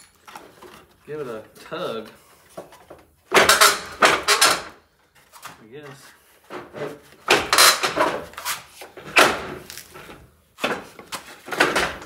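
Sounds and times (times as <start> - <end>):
car bumper clunking and scraping: 2.6 - 5.4, 6.4 - 12.0.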